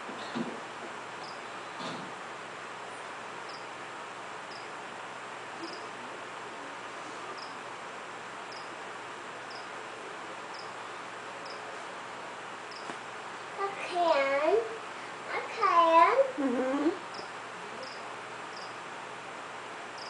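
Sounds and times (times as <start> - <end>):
insect chirping: 1.2 - 1.4, 3.5 - 3.7, 4.5 - 4.7, 5.6 - 5.9, 7.4 - 7.6, 8.5 - 8.7, 9.5 - 9.7, 10.5 - 10.8, 11.4 - 11.6, 17.1 - 18.8.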